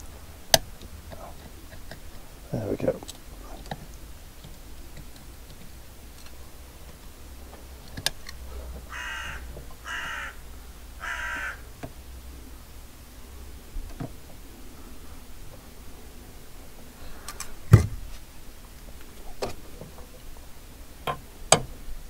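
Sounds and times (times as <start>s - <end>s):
bird calling: 8.8s - 11.7s.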